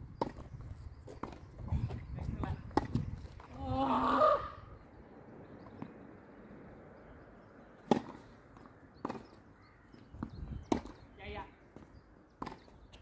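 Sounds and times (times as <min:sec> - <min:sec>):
tennis racket hitting ball: 0:07.8 - 0:08.2.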